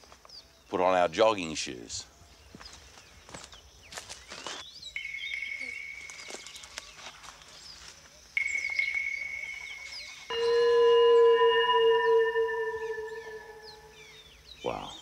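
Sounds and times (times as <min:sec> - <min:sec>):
bird or insect chirps: 0:00.0 - 0:15.0
high-pitched whine: 0:08.4 - 0:14.4
low musical tone with overtones: 0:10.3 - 0:14.2.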